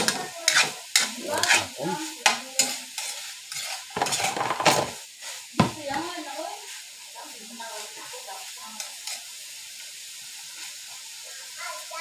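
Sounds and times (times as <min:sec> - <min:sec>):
metal spatula scraping a wok: 0:00.0 - 0:06.0, 0:08.7 - 0:09.5
meat sizzling in oil: 0:00.0 - 0:12.0.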